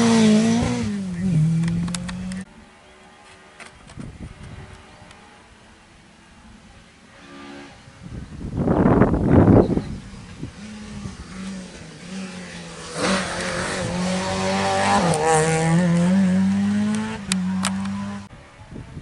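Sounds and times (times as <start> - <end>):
rally car engine revving: 0.0 - 2.5, 9.6 - 18.3.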